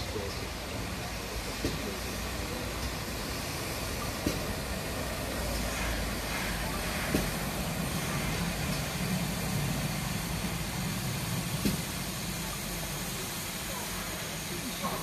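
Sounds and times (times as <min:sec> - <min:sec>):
steam locomotive rumble: 0:00.0 - 0:15.0.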